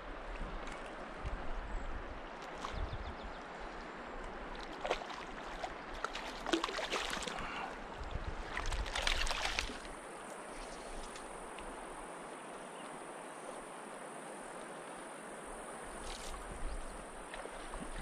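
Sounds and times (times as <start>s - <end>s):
stream over cobbles: 0.0s - 18.0s
fish thrashing splashes: 4.7s - 7.6s, 8.5s - 9.9s.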